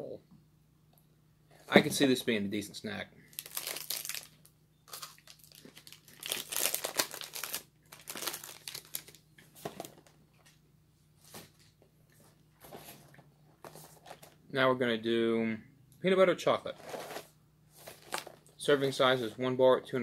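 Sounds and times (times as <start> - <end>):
wrapper crinkling and rustling: 3.3 - 10.1, 16.8 - 18.5.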